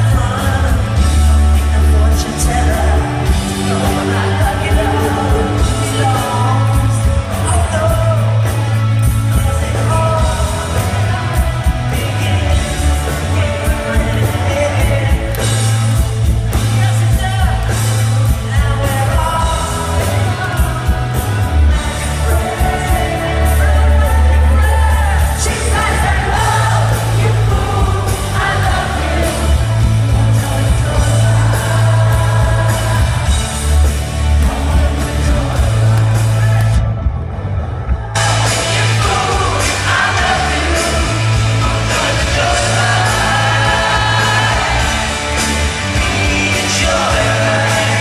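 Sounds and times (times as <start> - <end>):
lead vocal singing: 0.0 - 36.9, 37.6 - 48.0
pop-rock band playing live: 0.0 - 48.0
audience yelling and whooping: 19.7 - 48.0.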